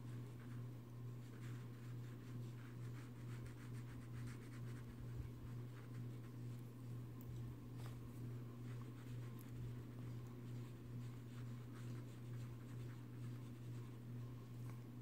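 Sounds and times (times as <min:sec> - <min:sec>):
steady low hum: 0:00.0 - 0:15.0
brush scratching on paper: 0:01.2 - 0:06.6, 0:07.8 - 0:14.0.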